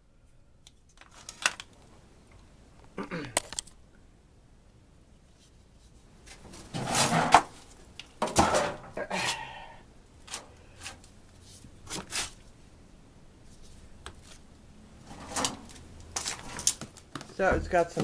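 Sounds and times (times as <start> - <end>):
plastic filter scraping: 6.5 - 7.5.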